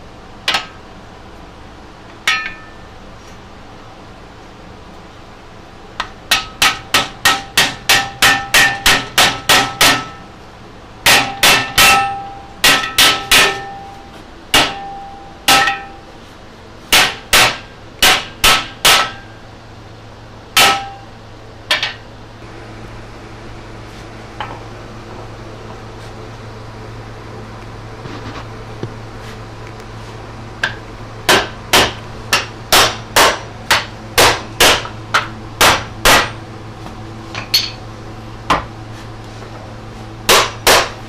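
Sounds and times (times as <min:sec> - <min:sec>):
hammer striking wood into steel: 0:06.3 - 0:10.2, 0:11.0 - 0:13.8, 0:14.5 - 0:16.0, 0:16.9 - 0:19.2, 0:20.6 - 0:21.0, 0:30.6 - 0:36.4, 0:40.3 - 0:41.0.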